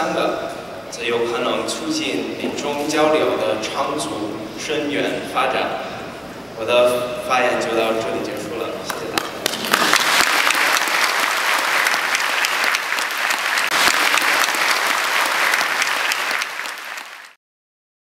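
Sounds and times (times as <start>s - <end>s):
audience applauding: 9.1s - 17.4s.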